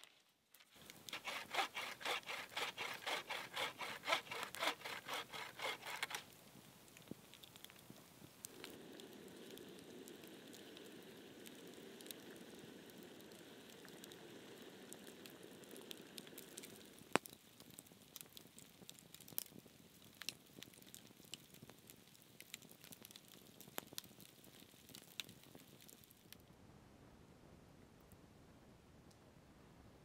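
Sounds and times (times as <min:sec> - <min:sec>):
campfire crackling and popping: 0:00.0 - 0:26.4
kettle hissing: 0:08.2 - 0:17.2.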